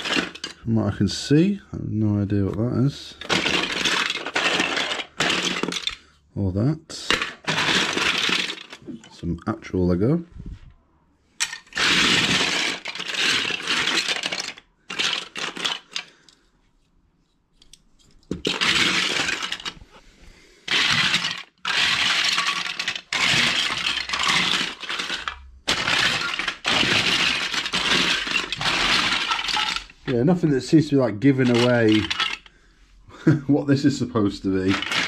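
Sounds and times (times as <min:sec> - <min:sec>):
plastic bricks clattering: 0:00.0 - 0:01.0, 0:02.9 - 0:06.2, 0:06.9 - 0:09.3, 0:11.4 - 0:16.4, 0:18.2 - 0:20.0, 0:20.6 - 0:32.6, 0:34.4 - 0:35.0.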